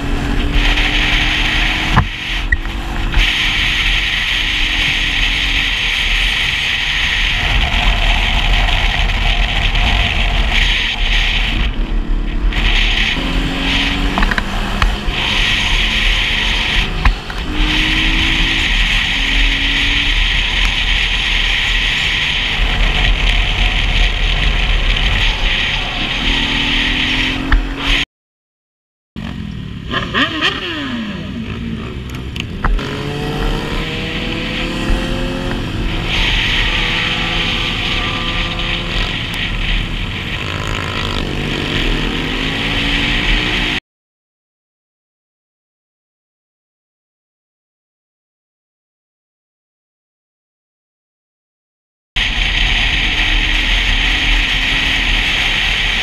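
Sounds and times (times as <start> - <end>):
motorcycle engine revving: 0.0 - 28.0, 29.2 - 43.8, 52.2 - 56.0
wind rushing on microphone: 0.0 - 28.0, 32.1 - 43.8.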